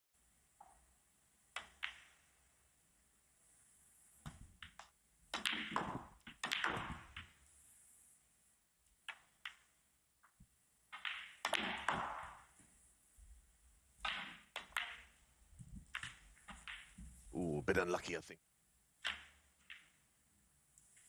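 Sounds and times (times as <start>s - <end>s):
snooker balls clicking: 1.5s - 2.3s, 4.2s - 7.4s, 8.9s - 12.7s, 14.0s - 17.2s, 19.0s - 20.1s.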